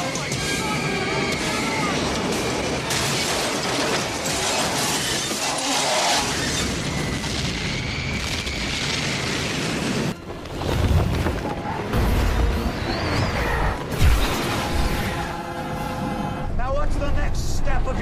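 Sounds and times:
crashing metal and shattering: 1.7s - 9.5s.

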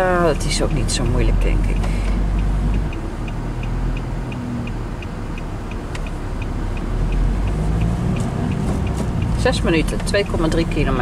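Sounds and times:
turn signal ticking: 0.0s - 11.0s
van engine and road noise: 0.0s - 11.0s.

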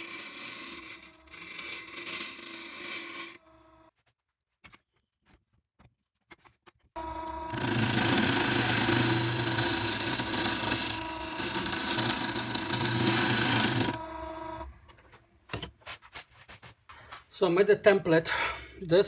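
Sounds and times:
gouge cutting spinning wood: 0.0s - 3.9s, 7.0s - 14.7s
lathe motor humming: 7.0s - 14.7s.

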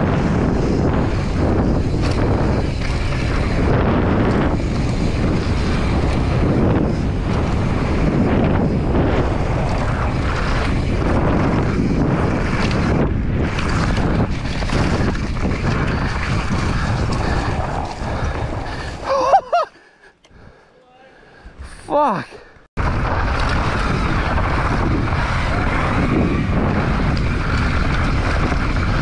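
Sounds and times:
bike knocking and rattling: 0.0s - 19.1s, 22.8s - 29.0s
wind rushing over microphone: 0.0s - 19.7s, 22.8s - 29.0s
tyres on dirt: 0.0s - 29.0s.

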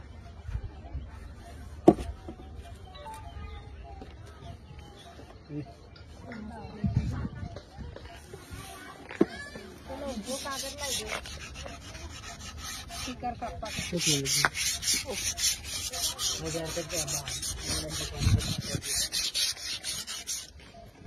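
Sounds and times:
rubbing strokes on wooden bat: 9.8s - 21.0s.

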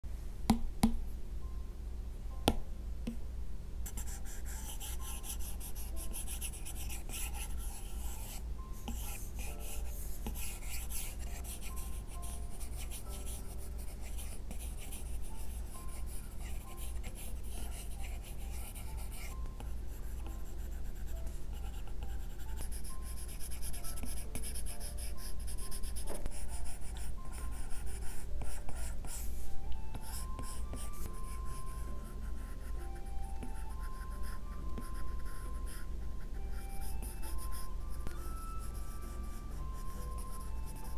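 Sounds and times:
light pen taps: 0.5s - 1.0s.

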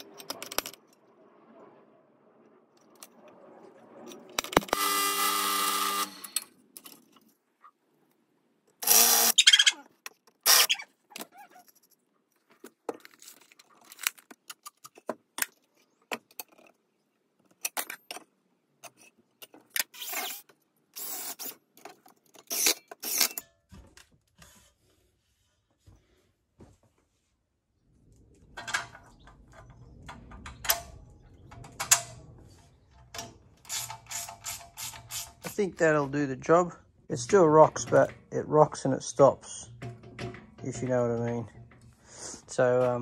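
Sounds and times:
timber and tools clattering: 37.1s - 43.0s.

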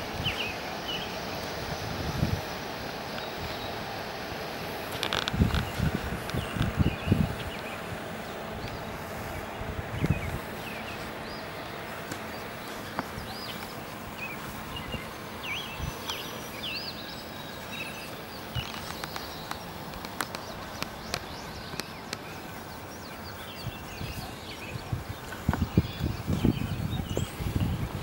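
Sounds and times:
small birds chirping: 0.0s - 28.0s
steady hiss: 0.0s - 28.0s
light clicks and taps: 18.7s - 22.3s.

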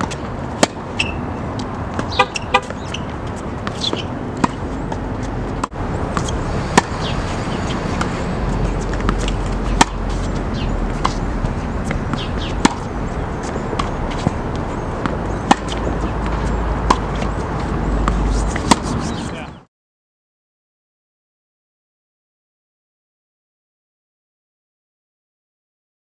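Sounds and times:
tennis ball bounces: 0.0s - 19.3s
tennis ball racket hits: 0.0s - 19.4s
steady outdoor noise: 0.0s - 19.7s
wind rumble on microphone: 4.2s - 19.6s.

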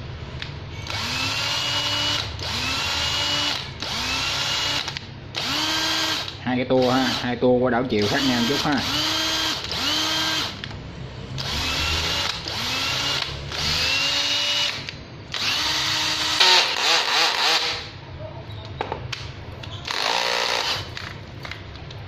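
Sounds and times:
cordless drill motor whining: 0.8s - 7.2s, 8.0s - 10.6s, 11.4s - 17.9s, 19.8s - 20.9s.

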